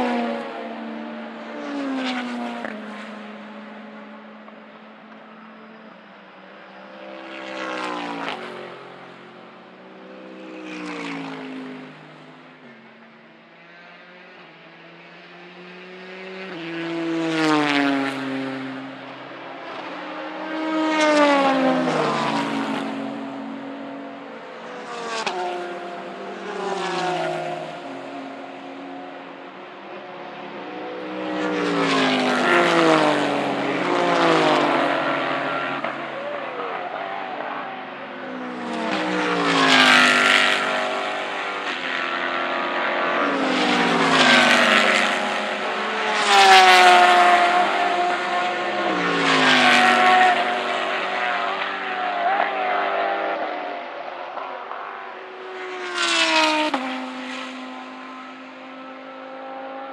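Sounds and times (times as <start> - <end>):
race cars braking and downshifting: 0.0 - 59.9.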